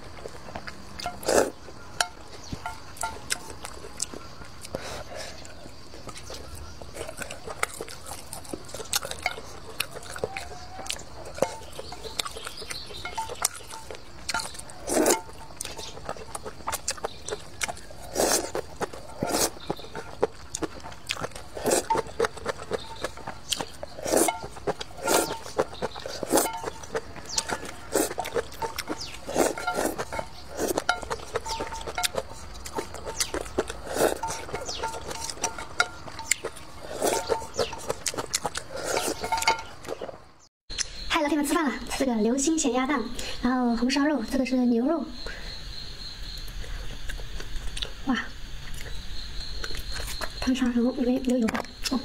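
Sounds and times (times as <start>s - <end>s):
wet chewing and lip smacks: 5.4s - 40.9s
slurping noodles: 18.0s - 20.2s, 23.6s - 26.5s, 27.5s - 31.5s, 32.2s - 35.0s, 36.8s - 39.4s.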